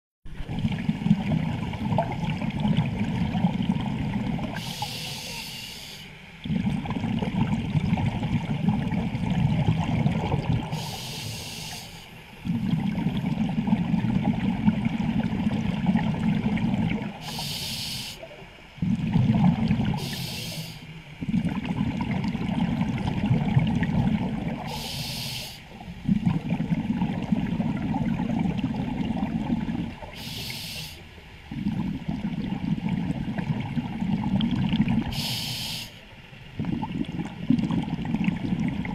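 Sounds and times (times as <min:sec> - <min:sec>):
exhaled air bubbling underwater: 0:00.3 - 0:38.9
regulator hiss on inhale: 0:04.6 - 0:06.2, 0:10.7 - 0:12.4, 0:17.2 - 0:18.3, 0:20.0 - 0:21.0, 0:24.6 - 0:25.8, 0:30.1 - 0:31.2, 0:35.1 - 0:36.1.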